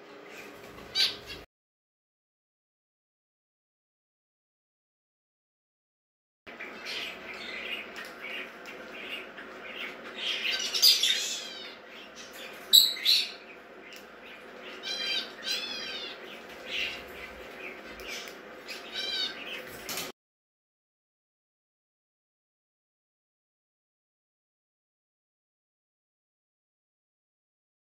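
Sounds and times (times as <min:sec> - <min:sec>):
budgerigar chirping: 0:09.1 - 0:13.4, 0:14.8 - 0:17.0.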